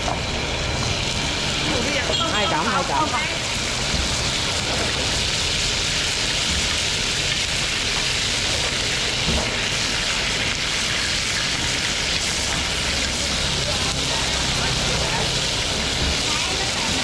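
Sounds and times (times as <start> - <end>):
food sizzling in a pan: 0.0 - 17.0.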